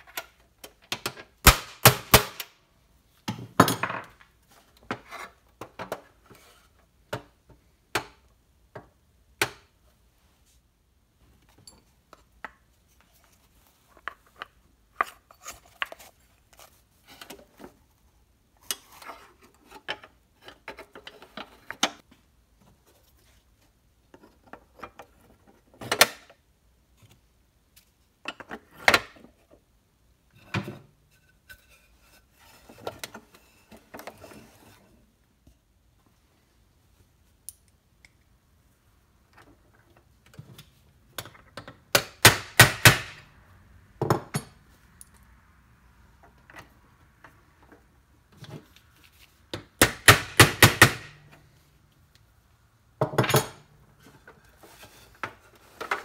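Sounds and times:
handling and rubbing: 9.9 - 25.7, 46.3 - 49.5, 53.8 - 56.0.

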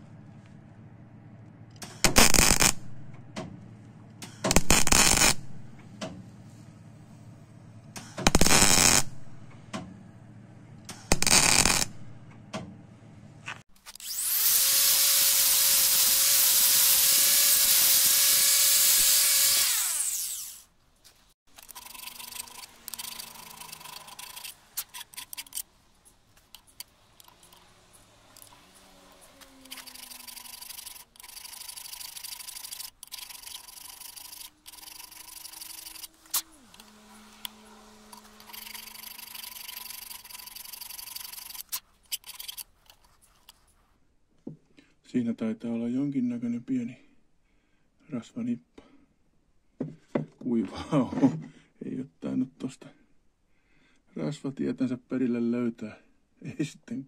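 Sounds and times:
harsh tool noise bursts: 1.8 - 2.8, 4.2 - 5.6, 8.0 - 9.3, 10.9 - 12.0, 13.9 - 20.7, 21.6 - 25.7, 26.7 - 41.8
angle grinder grinding metal: 8.3 - 9.1, 11.1 - 11.9, 13.8 - 20.7, 21.5 - 25.7, 26.5 - 42.6
scraping of steel shaft: 21.5 - 43.0.

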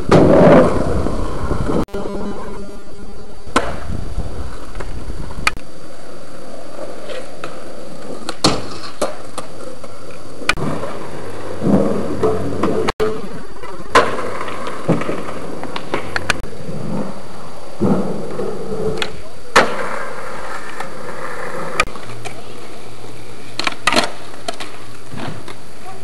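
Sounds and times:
skateboard wheels rolling: 0.0 - 26.0.

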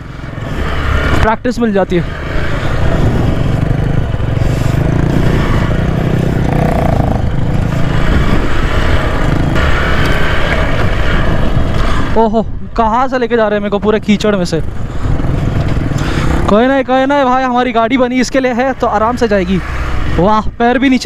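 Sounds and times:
motorcycle engine rumbling: 0.0 - 21.0.

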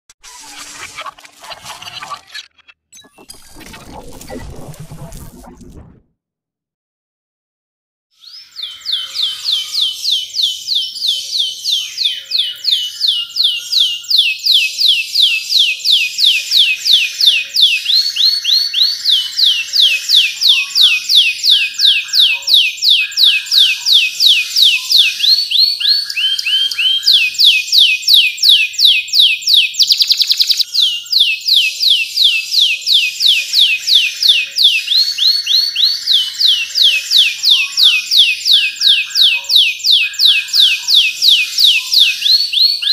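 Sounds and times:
canary singing: 8.3 - 42.9.

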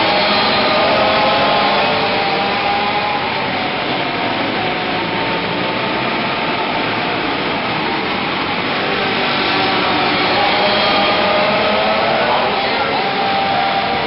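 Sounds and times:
small race car engines droning: 0.0 - 14.0.

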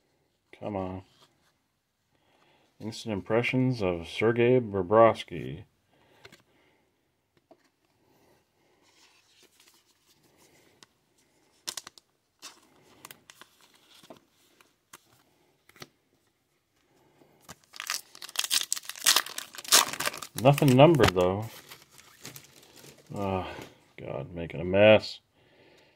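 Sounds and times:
foil pack tearing and crinkling: 17.6 - 23.1.

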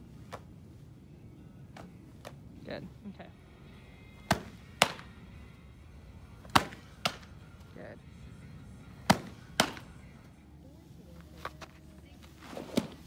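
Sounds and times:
softball smacking into leather glove: 4.2 - 5.2, 6.4 - 7.4, 9.0 - 10.0, 12.5 - 13.0.

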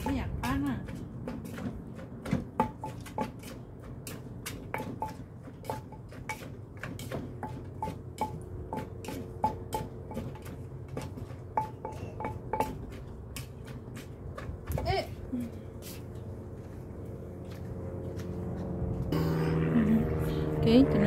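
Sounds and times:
wooden pestle pounding in mortar: 0.0 - 15.2.

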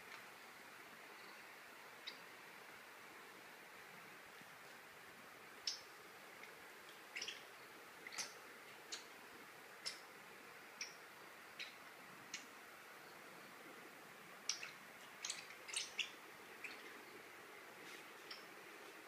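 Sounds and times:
faint room hiss: 0.0 - 19.0.

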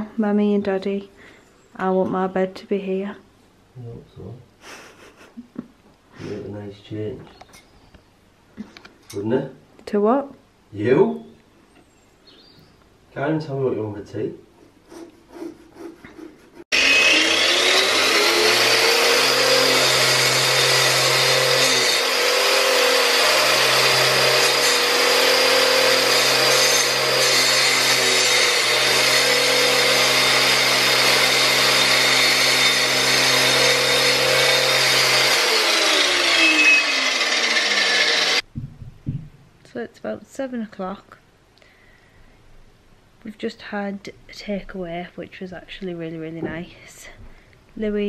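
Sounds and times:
vacuum drawing dust: 16.7 - 26.9
power tool on plaster wall: 16.7 - 38.5.

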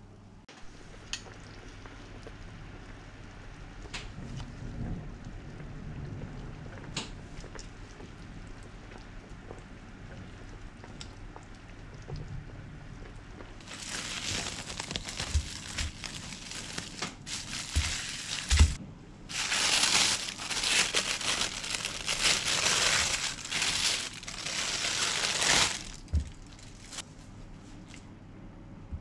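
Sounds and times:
plastic bag crinkling: 13.6 - 27.0.

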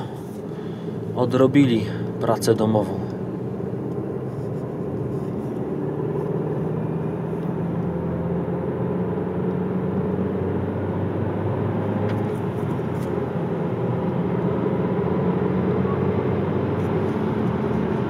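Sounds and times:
car engine hum: 0.0 - 18.0
tyre and road noise: 11.6 - 14.3.

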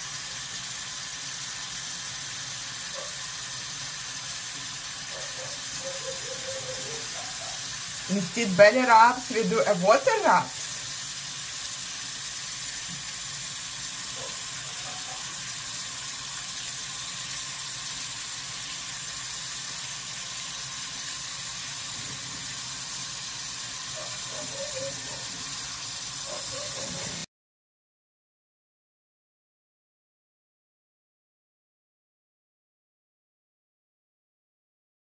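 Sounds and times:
tap water running into sink: 0.0 - 27.3.

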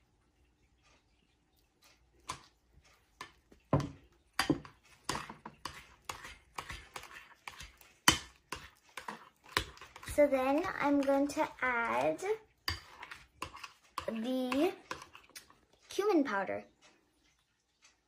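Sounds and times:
metal spoon stirring in bowl: 1.9 - 16.0.

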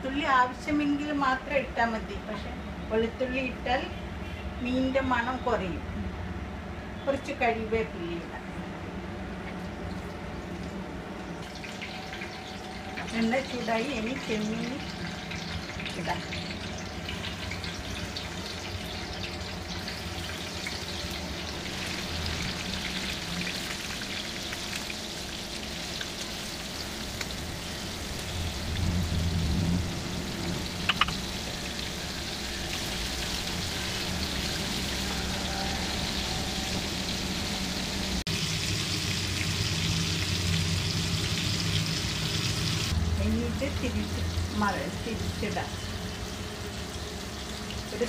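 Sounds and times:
prawns sizzling in hot oil: 10.6 - 48.0
sharp clicks: 30.8 - 31.2.

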